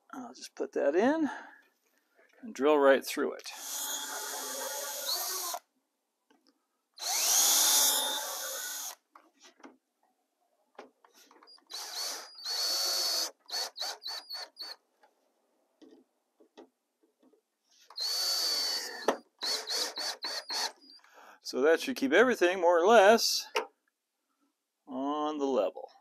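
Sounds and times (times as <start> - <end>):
cordless drill boring into wood: 3.5 - 5.7, 7.0 - 9.0, 11.4 - 14.8, 17.9 - 21.0
drill trigger blips: 3.6 - 5.6, 7.0 - 9.0.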